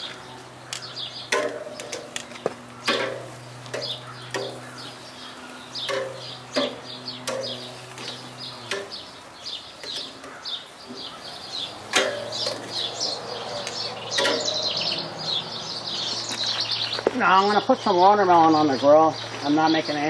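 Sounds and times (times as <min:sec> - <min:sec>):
birds chirping: 0:00.0 - 0:20.0
metal tongs clacking on grill: 0:00.6 - 0:05.1, 0:05.8 - 0:09.0, 0:09.8 - 0:14.9.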